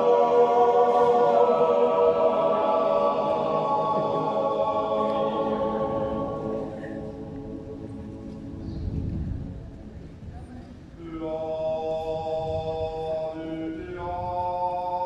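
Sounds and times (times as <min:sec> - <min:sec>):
choir yodeling wordless chord: 0:00.0 - 0:09.0, 0:11.0 - 0:15.0.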